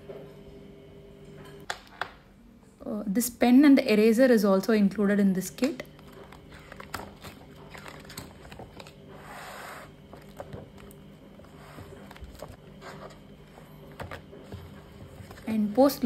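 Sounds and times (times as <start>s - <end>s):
plastic sheets rustling: 5.7s - 16.0s.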